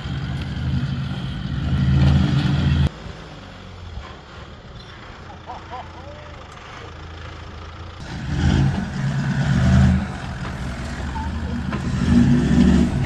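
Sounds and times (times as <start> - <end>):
vehicle engine revving under load: 6.5 - 13.0.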